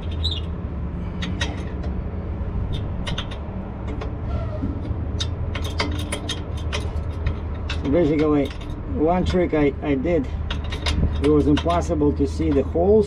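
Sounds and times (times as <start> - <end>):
wrench clicking on nuts: 2.7 - 4.2, 4.8 - 9.4, 10.4 - 11.9.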